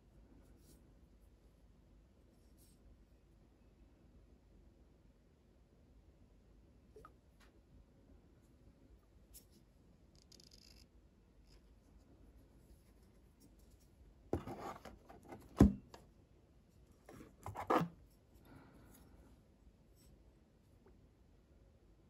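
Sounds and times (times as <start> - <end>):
cardboard box scraping rustle: 14.4 - 15.5, 17.4 - 17.9.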